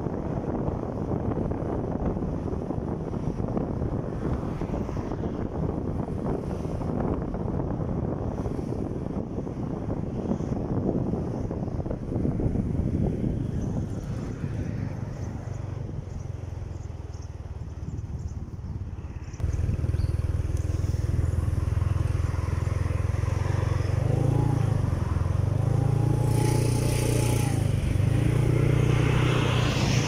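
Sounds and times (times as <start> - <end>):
wind noise on microphone: 0.0 - 30.0
motorcycle engine running: 14.9 - 29.2.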